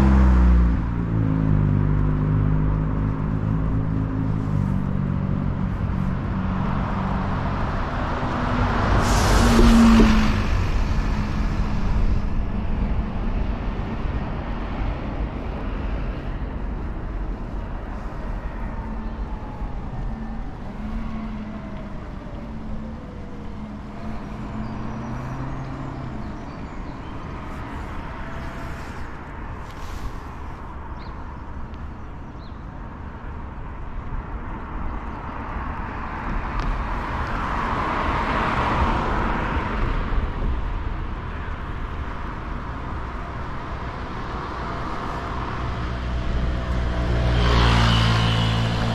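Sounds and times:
low rumble of traffic: 0.0 - 48.9
car passing close by: 5.4 - 15.4, 43.7 - 48.9.

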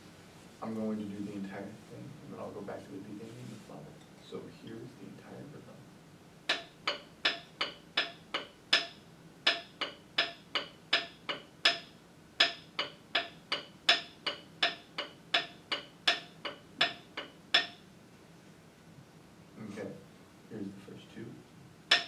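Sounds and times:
rhythm sticks clicking: 6.5 - 17.8.

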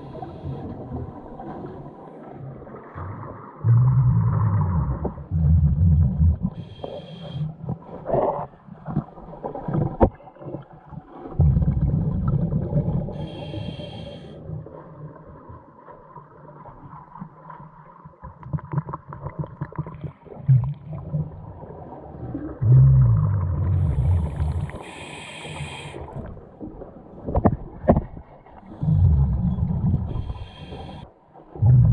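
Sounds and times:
exhaled bubbles rumbling underwater: 0.0 - 31.9
regulator hiss: 24.4 - 26.1.

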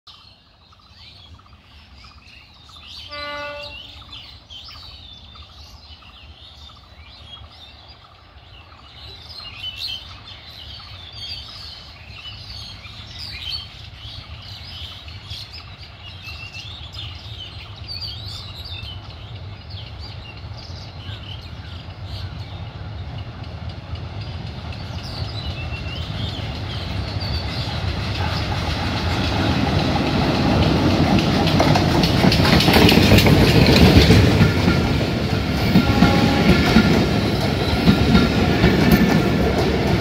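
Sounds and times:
small birds chirping: 0.1 - 28.7
diesel locomotive rumble: 15.0 - 40.0.

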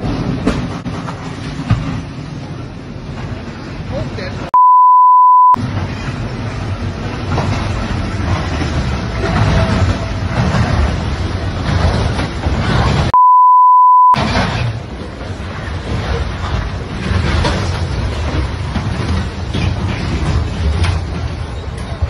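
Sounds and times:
censor bleep: 4.5 - 5.6, 13.1 - 14.2
train derailing rumble: 5.6 - 13.1, 14.2 - 22.0.

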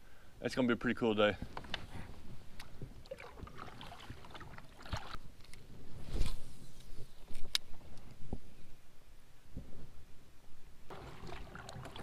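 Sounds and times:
water lapping on hull: 2.7 - 5.3, 10.9 - 12.0.

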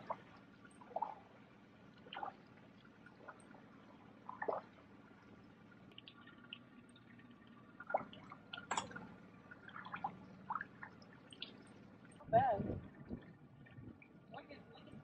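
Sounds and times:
water dripping on boat hull: 0.0 - 1.3, 1.9 - 14.9
faint low hum: 0.0 - 15.0.

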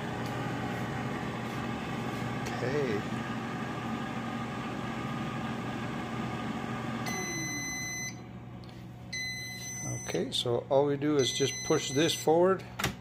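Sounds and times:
air fryer fan humming: 0.0 - 13.0
long high beep: 7.0 - 8.2, 9.2 - 10.2, 11.2 - 12.2.

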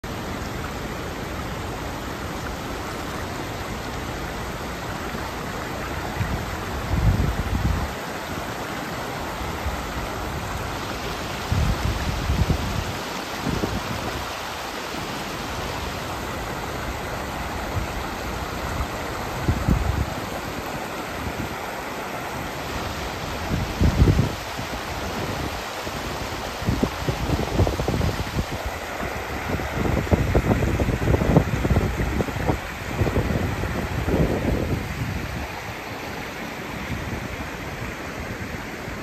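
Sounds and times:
flood water rushing: 0.0 - 39.0
wind gusts buffeting microphone: 5.9 - 8.4, 9.3 - 14.8, 16.4 - 38.6.

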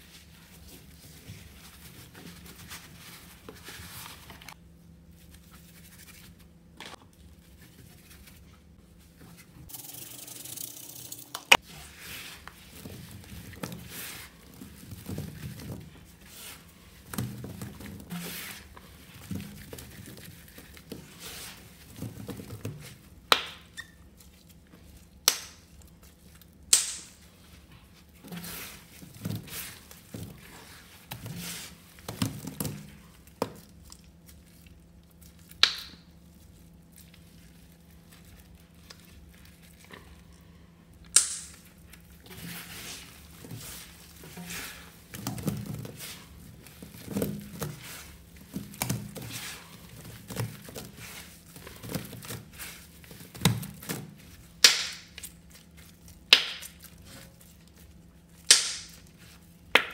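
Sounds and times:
dry sponges crunching: 11.6 - 23.2, 27.2 - 41.0, 41.6 - 59.7.

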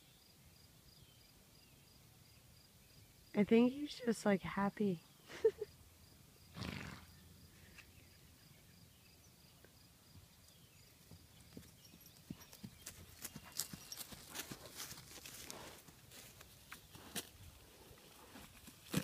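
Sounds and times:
horse hoofbeats on grass: 10.2 - 19.0.

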